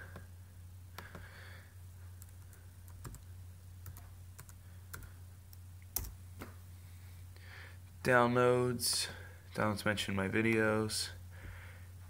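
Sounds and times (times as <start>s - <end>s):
laptop keyboard typing: 1.0s - 1.3s, 2.2s - 5.1s, 6.0s - 6.2s.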